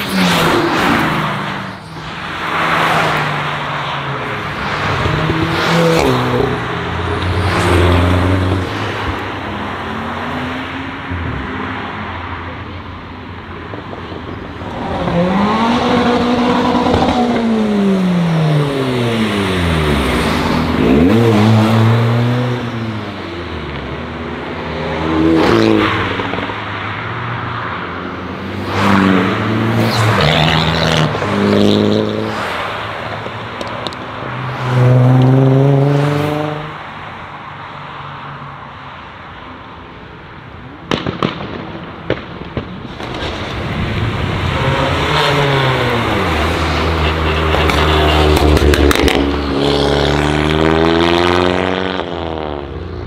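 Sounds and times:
cars accelerating hard: 0.0s - 12.6s, 14.6s - 37.1s, 43.0s - 53.0s
exhaust pops and crackles: 40.9s - 44.2s.

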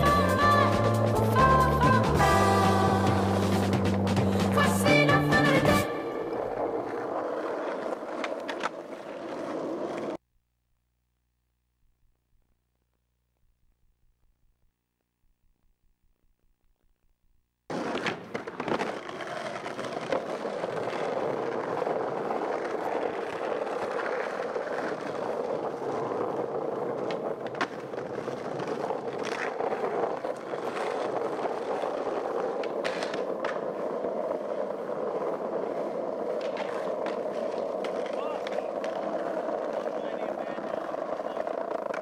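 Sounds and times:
skateboard wheels rolling on paving: 0.0s - 10.2s, 15.2s - 42.0s
skateboard clacking on ground: 5.4s - 10.2s, 17.7s - 42.0s.

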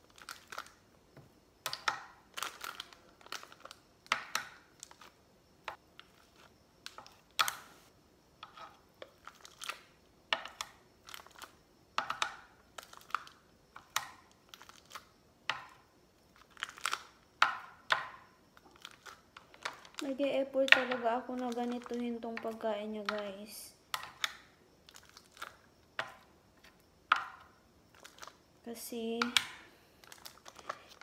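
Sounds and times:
plastic pack crinkling: 0.0s - 0.8s, 2.3s - 3.8s, 9.1s - 9.9s, 18.6s - 20.2s, 24.2s - 25.6s, 27.9s - 28.4s, 29.9s - 31.0s.

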